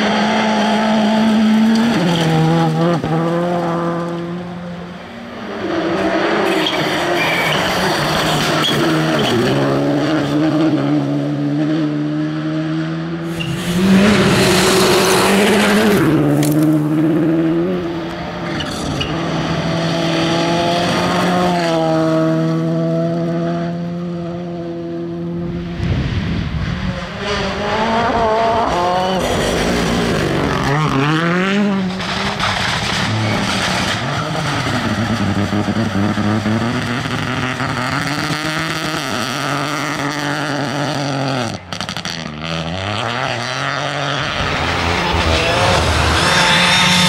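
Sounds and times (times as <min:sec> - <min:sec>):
rally car engines revving: 0:00.0 - 0:47.0
gravel spraying from tyres: 0:13.3 - 0:16.9.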